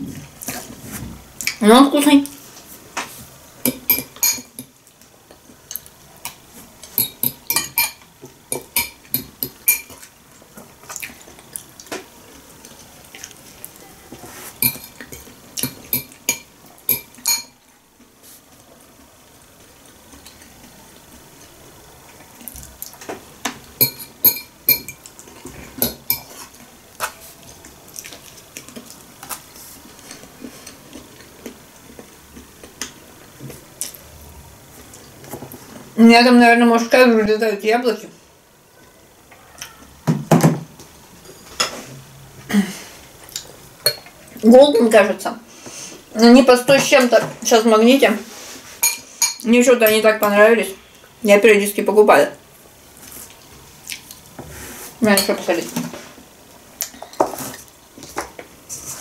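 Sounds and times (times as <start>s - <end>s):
fork clinking on glass bowl: 7.0s - 10.0s, 14.6s - 17.6s, 23.8s - 25.1s.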